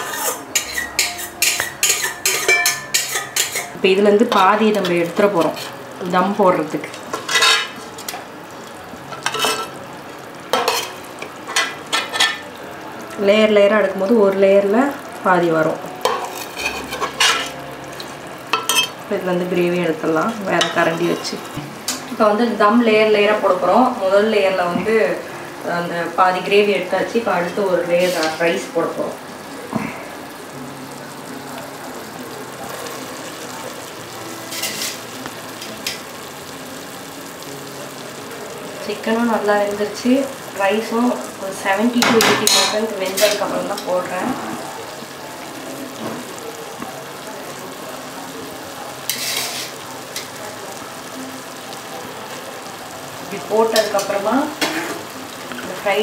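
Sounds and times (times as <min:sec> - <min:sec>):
ladle scraping metal pot: 0:00.0 - 0:03.8, 0:16.0 - 0:17.6, 0:28.0 - 0:28.5, 0:49.1 - 0:49.7
pot sizzling: 0:00.0 - 0:56.0.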